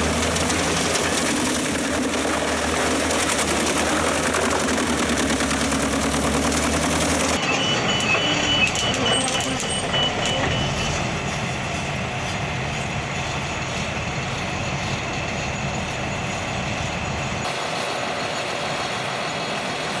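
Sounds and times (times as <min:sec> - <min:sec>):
drum chipper engine running: 0:00.0 - 0:20.0
excavator working: 0:00.0 - 0:20.0
high warning beep: 0:07.4 - 0:11.0.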